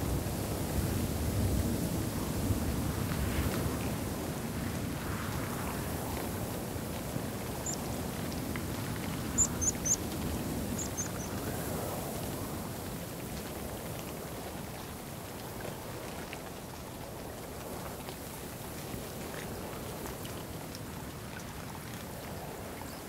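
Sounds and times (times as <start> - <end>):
wind: 0.0 - 23.0
high-pitched bird calls: 9.4 - 10.0.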